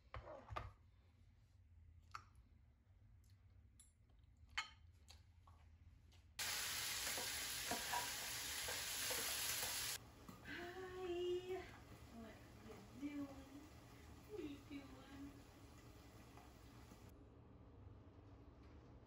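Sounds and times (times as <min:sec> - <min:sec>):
meat sizzling in a frying pan: 0:06.4 - 0:10.0.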